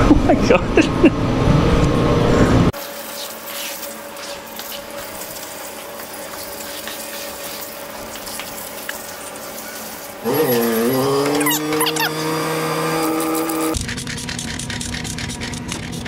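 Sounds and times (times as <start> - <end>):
water hissing from hose nozzle: 2.8 - 13.8.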